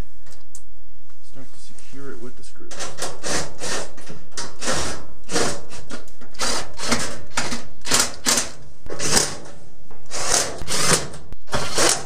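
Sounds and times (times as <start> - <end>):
cordless drill driving screws: 2.8 - 9.4, 10.1 - 12.0.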